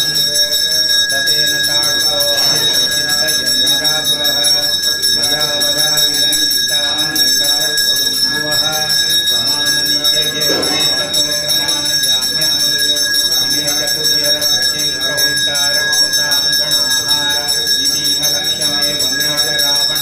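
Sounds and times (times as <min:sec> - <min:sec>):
bell ringing: 0:00.0 - 0:20.0
person chanting: 0:00.0 - 0:20.0.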